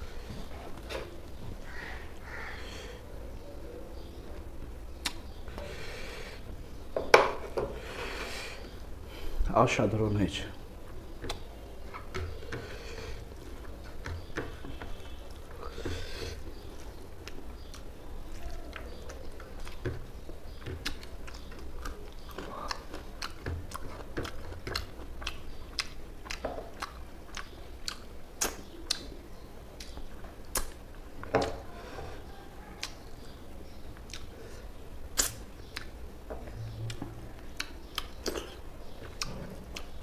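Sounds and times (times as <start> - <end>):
wet chewing with mouth clicks: 5.0 - 5.6, 11.2 - 31.6, 32.6 - 40.0.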